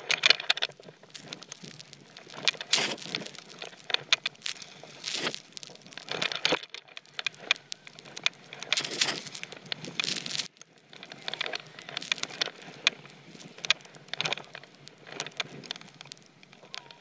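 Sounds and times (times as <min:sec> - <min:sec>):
snowboard swooshing through snow: 0:01.5 - 0:03.6, 0:04.6 - 0:06.2, 0:08.8 - 0:10.5.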